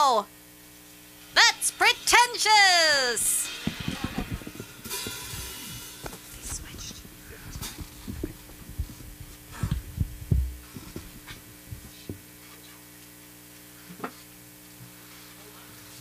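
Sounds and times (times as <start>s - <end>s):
electrical hum: 0.0s - 16.0s
dull low thumps and knocks: 6.7s - 11.9s.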